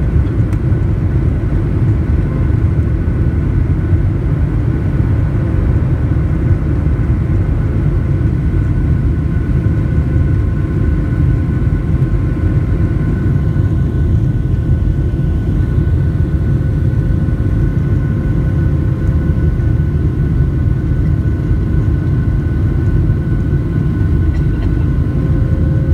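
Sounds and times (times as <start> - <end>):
jet engines rumbling in cabin: 0.0 - 25.9
engine whining tones: 24.2 - 25.9.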